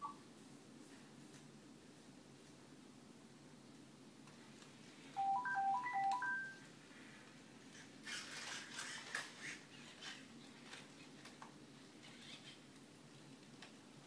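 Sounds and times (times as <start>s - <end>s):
robot electronic beep melody: 5.2s - 6.6s
mechanical whirring and clatter: 7.7s - 12.7s.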